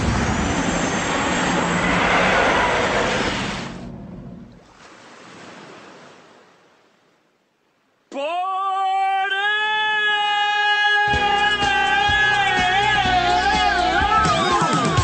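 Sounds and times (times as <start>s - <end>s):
airplane noise: 0.0s - 4.8s.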